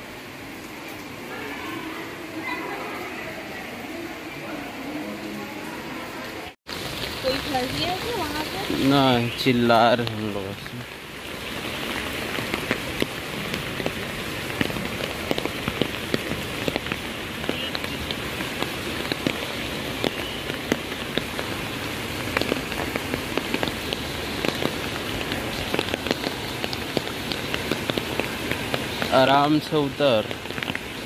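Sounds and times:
rain falling through trees: 0:00.0 - 0:31.0
raindrops ticking close by: 0:06.4 - 0:31.0.

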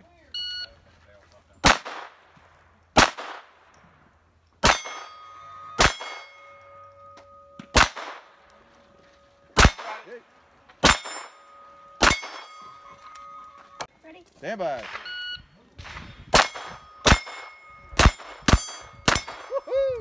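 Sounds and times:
pistol shots: 0:01.6 - 0:02.3, 0:03.0 - 0:03.7, 0:04.6 - 0:05.2, 0:05.8 - 0:06.4, 0:07.7 - 0:08.4, 0:09.6 - 0:10.1, 0:10.8 - 0:11.4, 0:12.0 - 0:12.5, 0:14.8 - 0:15.2, 0:15.8 - 0:19.5
steel plate clanging and ringing: 0:04.6 - 0:13.9, 0:16.2 - 0:19.9.

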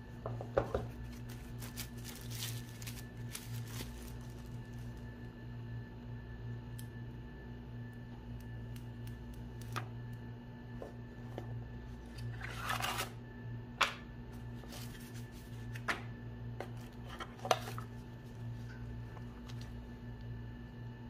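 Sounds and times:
low steady hum: 0:00.0 - 0:21.0
paper packaging rustling: 0:00.8 - 0:05.0, 0:14.6 - 0:15.9.

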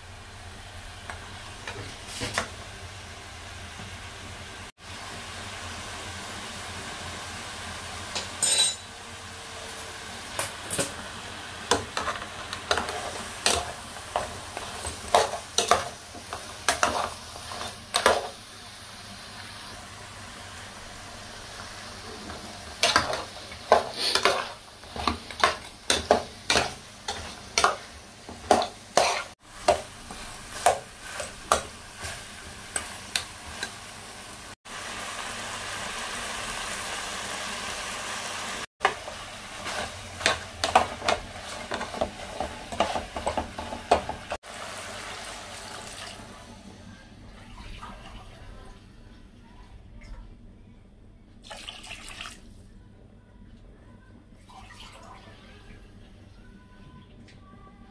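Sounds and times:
ringing metal clink: 0:08.4 - 0:08.9.

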